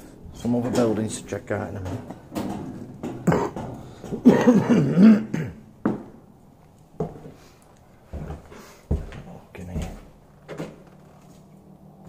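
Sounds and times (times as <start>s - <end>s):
footsteps on hard floor: 1.7s - 4.7s, 5.8s - 6.2s, 7.0s - 7.4s, 8.1s - 11.5s.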